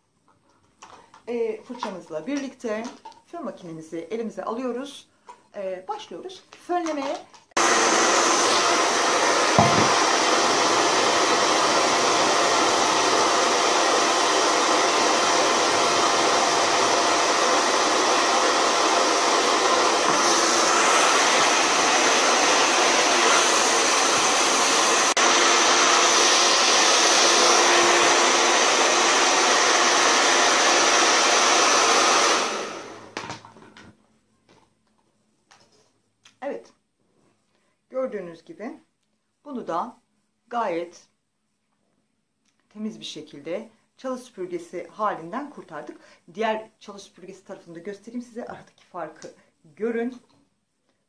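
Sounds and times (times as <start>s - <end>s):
hair dryer running: 7.6s - 33.4s.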